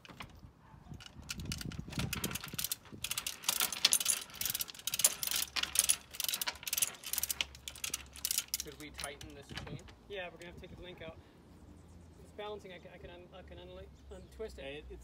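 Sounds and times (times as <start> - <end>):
chain rattling: 0.0 - 10.0
ratchet clicking: 1.0 - 9.8.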